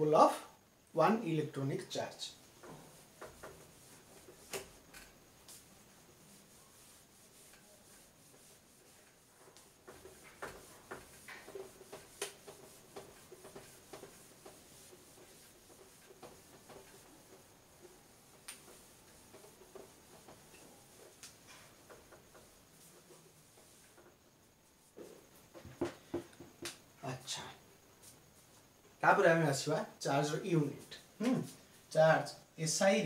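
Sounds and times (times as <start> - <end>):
cloth rubbing on whiteboard: 2.3 - 26.8, 27.5 - 28.7.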